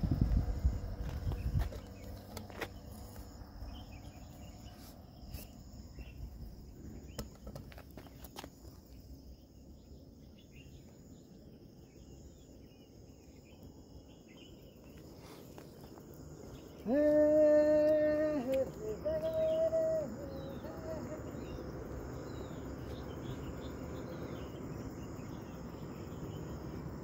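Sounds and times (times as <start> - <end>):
low rumble: 0.0 - 2.9
insects trilling: 0.0 - 27.0.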